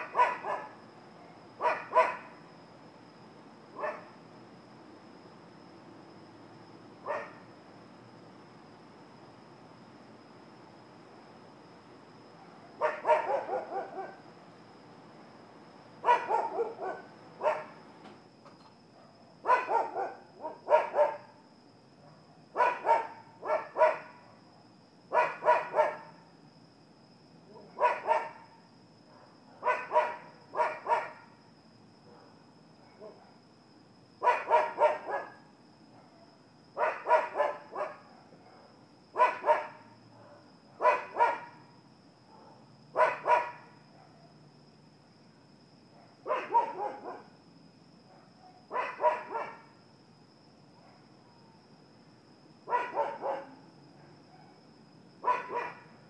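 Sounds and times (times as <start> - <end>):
dogs barking: 0.0 - 0.8, 1.6 - 2.3, 3.8 - 4.1, 7.1 - 7.4, 12.8 - 14.2, 16.0 - 17.8, 19.4 - 21.3, 22.6 - 24.2, 25.1 - 26.1, 27.6 - 28.4, 29.1 - 31.2, 34.2 - 35.4, 36.8 - 41.6, 42.4 - 44.2, 46.2 - 47.3, 48.2 - 49.6, 52.7 - 54.6, 55.2 - 55.8.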